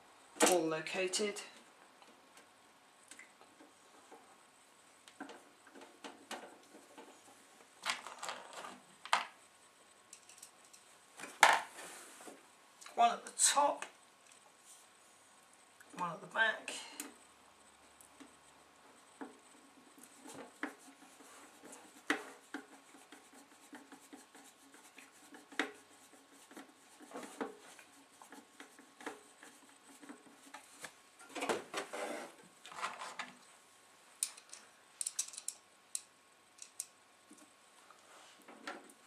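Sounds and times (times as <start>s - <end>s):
metal casing and screws handled: 10.1s - 10.9s, 34.2s - 35.6s.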